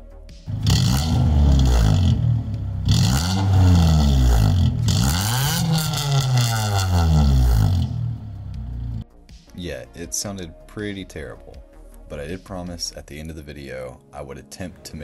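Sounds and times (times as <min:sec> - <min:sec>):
car engine revving: 0:00.5 - 0:09.0.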